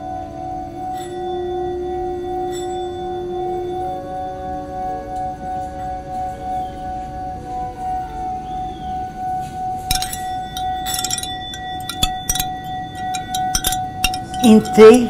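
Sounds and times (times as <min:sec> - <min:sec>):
ringing drone: 0:00.0 - 0:15.0
glassy clinks and chime strikes: 0:09.9 - 0:15.0.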